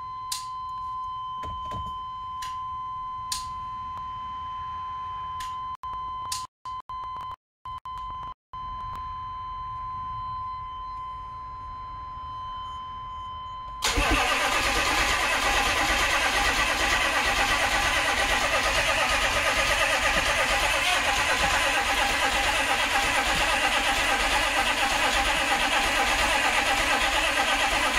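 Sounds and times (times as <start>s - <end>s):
diesel engine starting and running: 13.8s - 27.9s.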